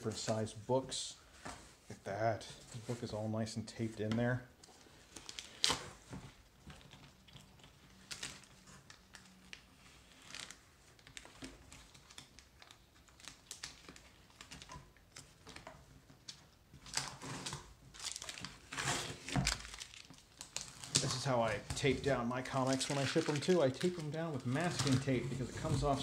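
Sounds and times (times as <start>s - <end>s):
tape being crumpled: 6.7s - 26.0s
tape being peeled off cardboard: 16.9s - 21.0s
cardboard flaps rustling: 21.0s - 26.0s.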